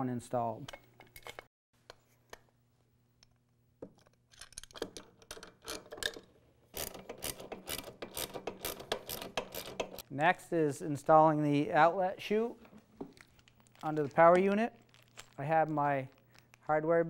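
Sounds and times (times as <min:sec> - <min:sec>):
wrench ratcheting clicks: 0:06.8 - 0:10.0.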